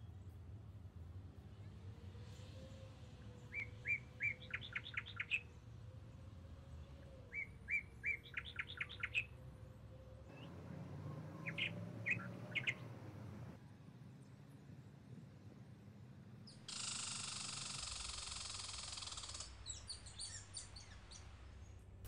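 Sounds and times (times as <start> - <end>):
songbird singing: 3.1 - 6.2, 6.8 - 13.6, 16.4 - 21.8.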